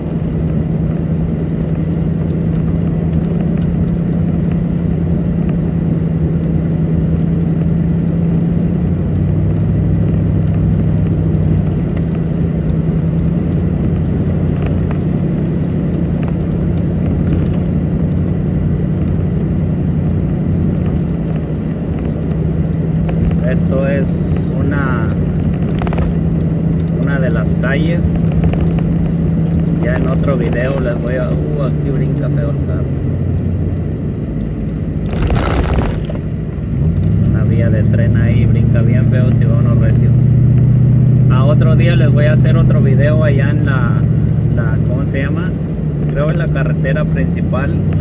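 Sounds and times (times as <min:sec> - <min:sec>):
vehicle engine and road noise: 0:00.0 - 0:48.0.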